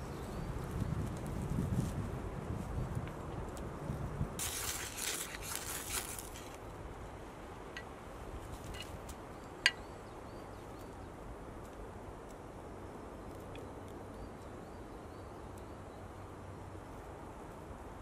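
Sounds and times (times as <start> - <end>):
faint ticks: 13.2 - 15.8.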